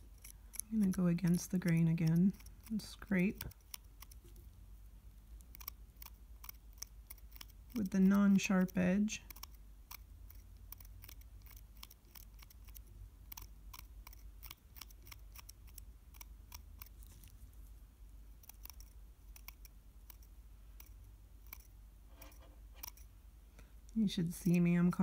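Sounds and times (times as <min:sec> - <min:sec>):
knife blade scratching resin: 0:09.3 - 0:15.8.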